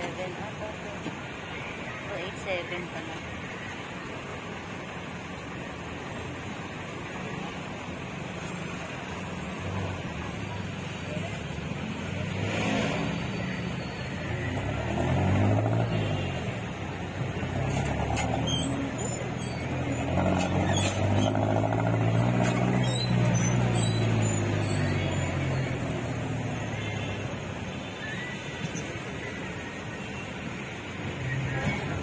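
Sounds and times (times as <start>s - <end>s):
diesel engine revving: 8.8s - 27.6s.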